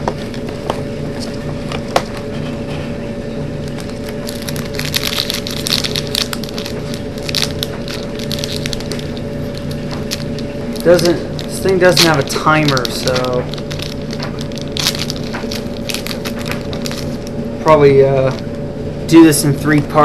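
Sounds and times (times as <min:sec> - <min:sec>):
wrapper crinkling and tearing: 0:03.7 - 0:17.3.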